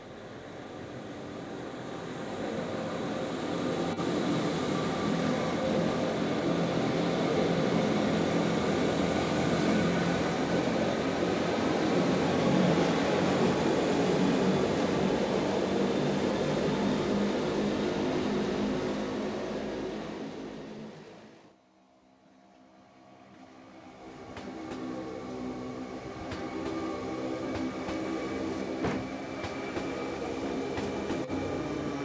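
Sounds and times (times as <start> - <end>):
train rumbling from on board: 23.0 - 32.0.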